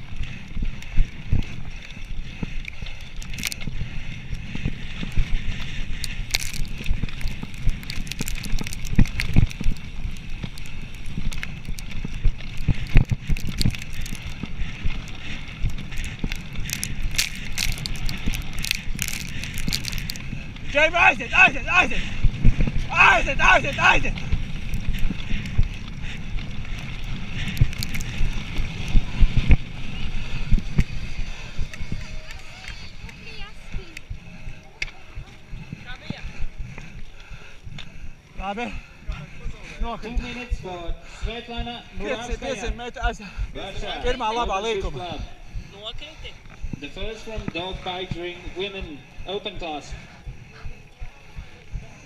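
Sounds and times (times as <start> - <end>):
bike knocking and rattling: 0.0 - 20.7
tyres rumbling on dirt trail: 0.0 - 52.0
wind buffeting microphone: 0.0 - 52.0.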